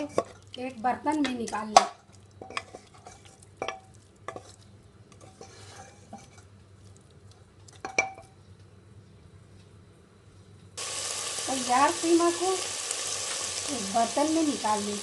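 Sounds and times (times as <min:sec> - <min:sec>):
spoon stirring minced meat: 0:01.2 - 0:08.2
spoon clinking against pot: 0:02.4 - 0:04.5, 0:07.8 - 0:08.3
faint sizzle: 0:10.8 - 0:15.0.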